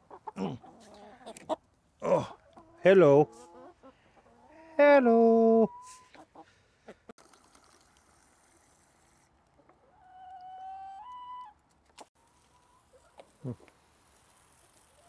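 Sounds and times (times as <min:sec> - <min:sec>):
chicken calling: 0:00.0 - 0:01.6, 0:02.2 - 0:07.1, 0:09.8 - 0:11.6.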